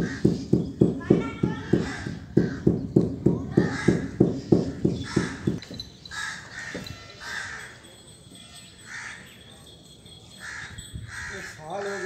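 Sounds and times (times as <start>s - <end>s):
crow cawing: 0.0s - 0.4s, 1.5s - 2.6s, 3.6s - 7.7s, 8.9s - 9.2s, 10.4s - 12.0s.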